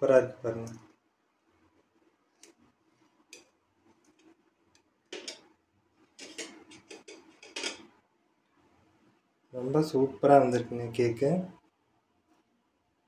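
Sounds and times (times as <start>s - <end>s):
knife scraping ceramic plate: 6.2s - 7.9s.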